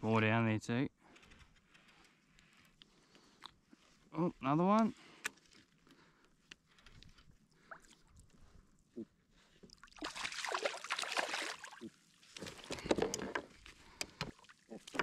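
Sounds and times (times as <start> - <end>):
fish thrashing water splashing: 9.8 - 12.0.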